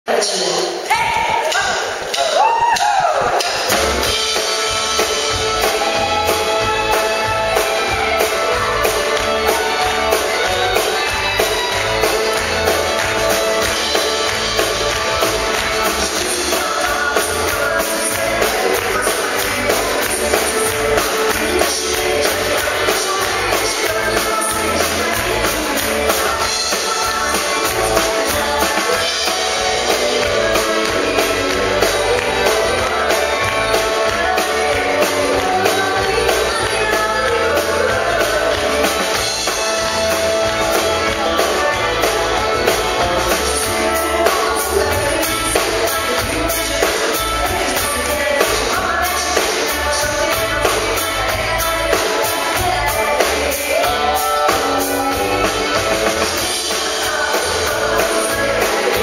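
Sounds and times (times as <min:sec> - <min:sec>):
drum kit: 0:00.1 - 0:59.0
guitar: 0:00.1 - 0:59.0
electric bass: 0:03.0 - 0:59.0
woman singing into a microphone: 0:15.9 - 0:39.3, 0:43.3 - 0:59.0.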